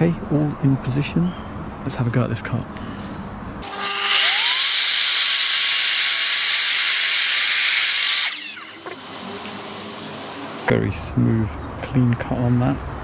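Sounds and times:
saw blade cutting timber: 3.6s - 10.2s
mitre saw motor starting: 3.6s - 10.7s.

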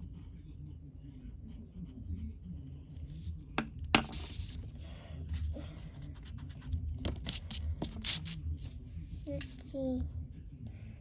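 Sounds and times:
pen tapping: 3.6s - 4.4s
pen scratching on paper: 4.0s - 8.8s.

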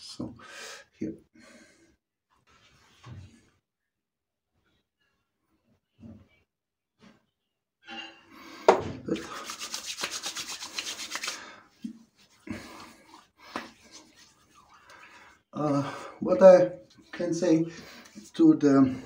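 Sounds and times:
hands slapping face: 9.1s - 11.5s, 13.1s - 14.2s
palms patting and rubbing skin: 9.1s - 15.5s, 16.4s - 18.5s.

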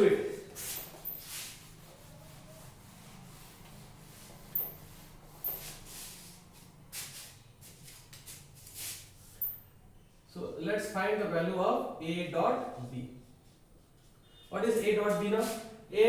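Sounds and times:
duster wiping whiteboard: 0.0s - 9.3s, 12.6s - 15.8s.

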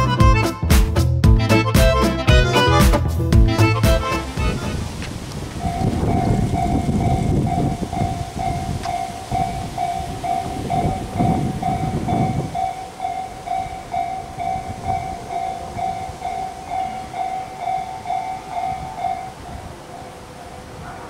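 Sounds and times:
electric train rumbling: 0.0s - 21.0s
level-crossing warning bell: 5.6s - 20.6s.

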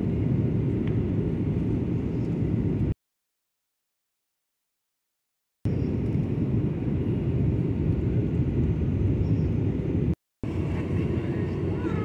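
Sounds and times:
airliner cabin engine rumble: 0.0s - 3.0s, 5.7s - 12.0s.

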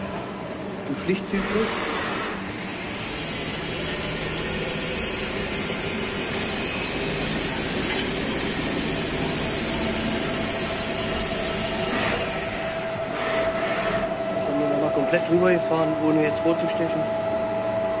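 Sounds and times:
lathe spindle whirring: 0.0s - 16.4s
cutting tool hissing on steel: 6.3s - 8.4s.

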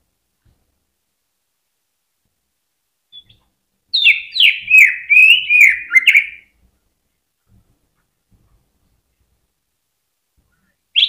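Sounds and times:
bird singing slurred notes: 4.0s - 6.5s.

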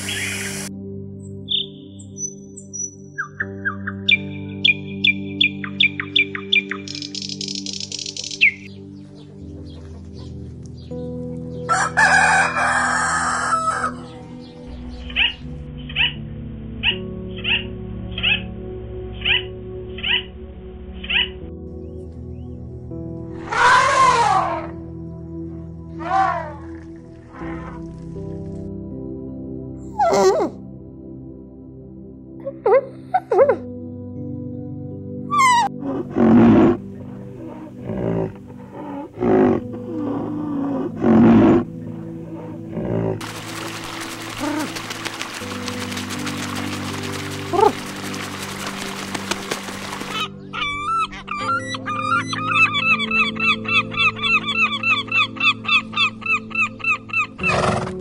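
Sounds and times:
musical drone: 0.0s - 2.2s, 33.6s - 58.0s
background music: 0.0s - 58.0s
rooster crowing: 11.7s - 14.1s
rough animal calls: 23.4s - 24.8s, 25.9s - 27.9s, 29.9s - 30.6s, 35.3s - 58.0s.

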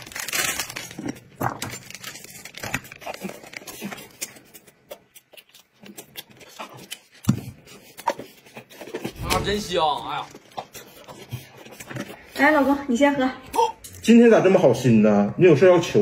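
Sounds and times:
chewing and mouth smacks: 2.6s - 9.2s.

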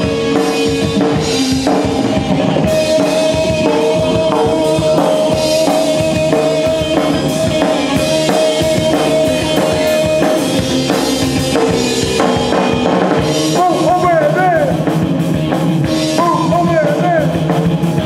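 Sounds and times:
drum kit beat: 0.0s - 18.0s
electric guitar and bass: 0.0s - 18.0s.

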